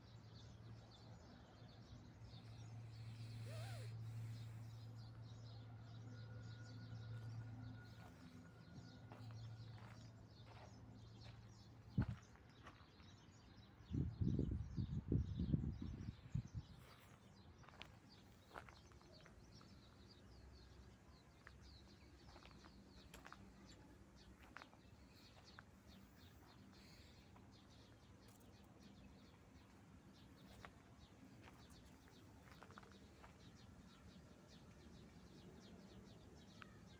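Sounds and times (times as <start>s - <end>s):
small birds chirping: 0.0s - 6.0s, 7.9s - 36.9s.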